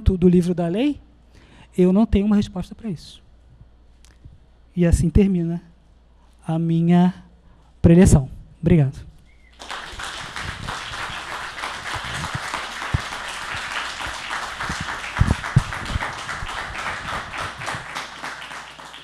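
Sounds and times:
audience applauding: 9.5s - 19.0s.

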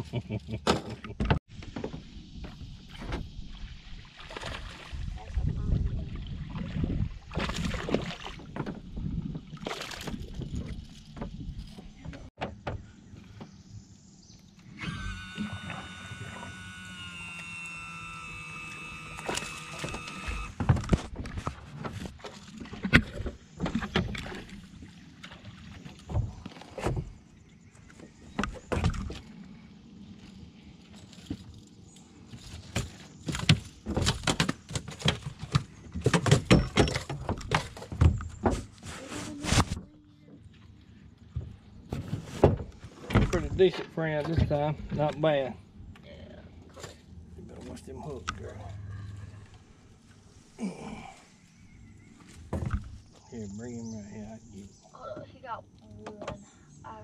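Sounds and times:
knocks and clatter on metal boat: 6.6s - 13.5s, 32.6s - 38.8s, 41.4s - 45.2s, 52.4s - 53.0s.

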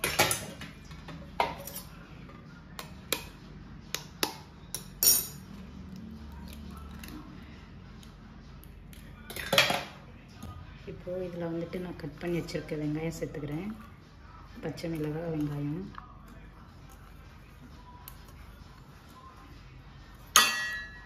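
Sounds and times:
metal clink: 20.4s - 21.0s.

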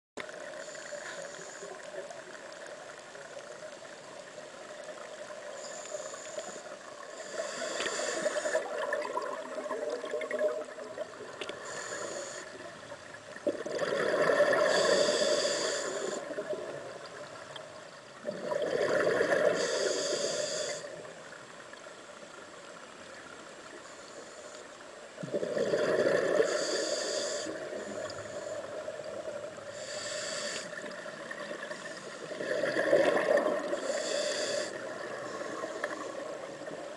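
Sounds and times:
diver breathing through regulator: 5.6s - 8.8s, 11.5s - 12.6s, 14.4s - 16.5s, 19.1s - 21.0s, 25.6s - 28.8s, 29.7s - 31.1s, 31.7s - 36.4s
bubbles rushing out: 13.5s - 14.7s.

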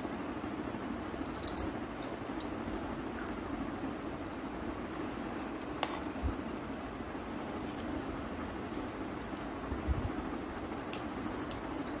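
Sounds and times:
steady low hum: 0.0s - 12.0s
crisp shells crackling when chewed: 1.2s - 6.0s, 6.9s - 9.8s.

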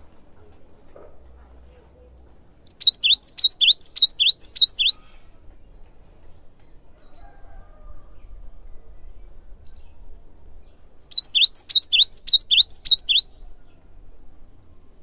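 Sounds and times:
bird singing high two-note phrases: 2.7s - 5.0s, 11.2s - 13.2s.

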